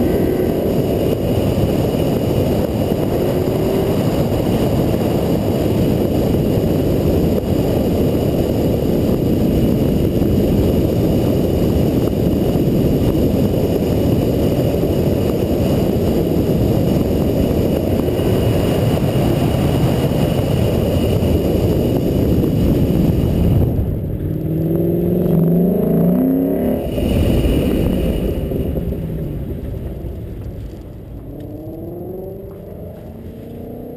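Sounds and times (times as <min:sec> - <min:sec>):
car engine revving: 0:20.0 - 0:33.9.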